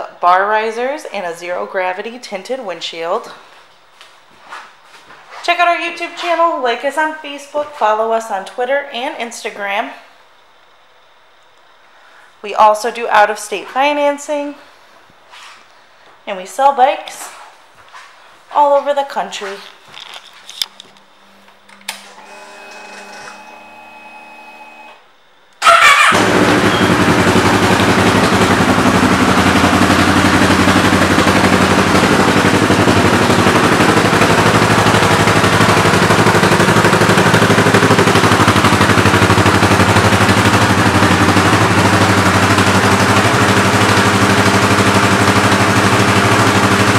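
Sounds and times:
faint steady whine: 0:00.0 - 0:25.6
motorcycle engine starting and idling: 0:25.6 - 0:46.9.

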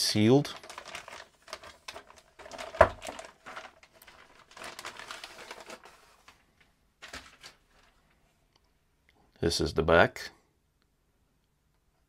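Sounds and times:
plastic bag crinkling: 0:00.1 - 0:08.2.

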